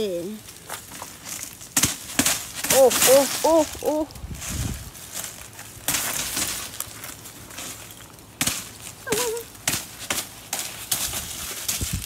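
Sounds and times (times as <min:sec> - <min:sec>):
ice crunching and crackling: 0:00.0 - 0:12.0
child's voice: 0:02.7 - 0:04.1, 0:09.1 - 0:09.5.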